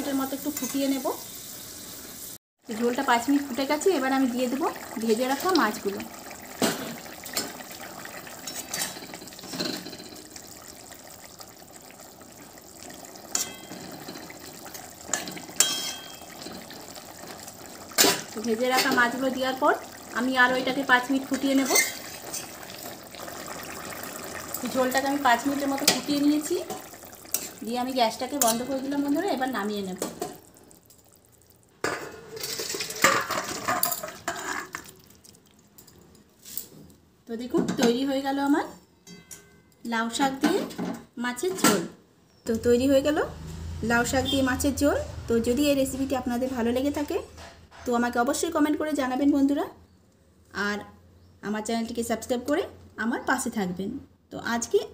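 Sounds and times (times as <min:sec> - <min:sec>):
broth bubbling at a boil: 0:03.0 - 0:33.6
metal spatula scraping a pan: 0:13.3 - 0:14.2, 0:21.4 - 0:22.6, 0:32.0 - 0:34.8.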